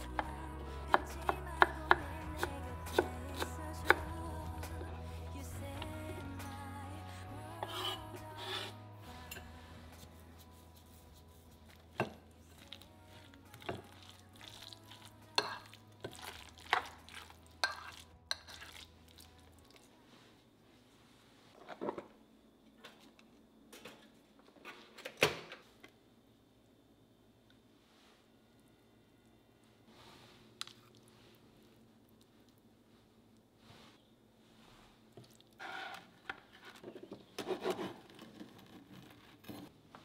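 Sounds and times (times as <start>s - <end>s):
soft background music: 0.0s - 21.4s
metal utensil scraping glass bowl: 7.6s - 9.5s, 15.0s - 18.9s.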